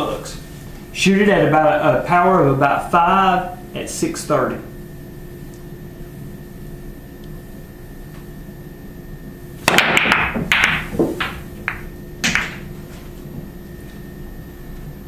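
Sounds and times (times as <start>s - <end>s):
billiard balls clacking: 9.6s - 12.7s.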